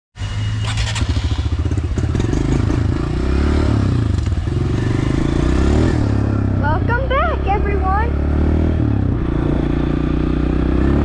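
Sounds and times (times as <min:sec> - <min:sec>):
dirt bike engine low revs: 0:00.6 - 0:11.0.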